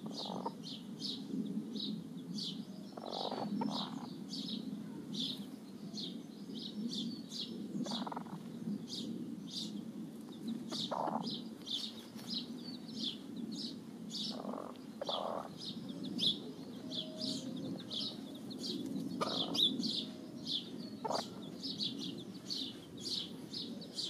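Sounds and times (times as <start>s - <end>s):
hen clucking: 0.0s - 0.6s, 3.0s - 4.1s, 7.8s - 8.4s, 10.7s - 11.4s, 14.3s - 15.7s, 19.2s - 20.1s, 21.0s - 21.5s
chicks peeping: 0.0s - 0.8s, 2.9s - 4.1s, 7.8s - 12.4s, 14.2s - 24.0s.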